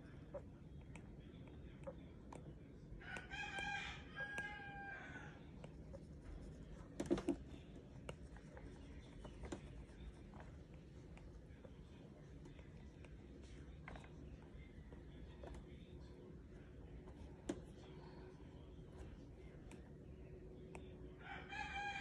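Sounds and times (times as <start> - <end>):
stylus tapping on a tablet screen: 0.0 - 5.0, 5.6 - 13.2.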